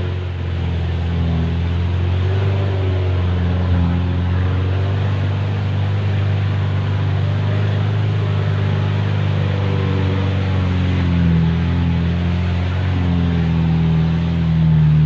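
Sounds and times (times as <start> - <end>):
road noise: 0.0 - 15.0
truck engine low hum: 0.0 - 15.0.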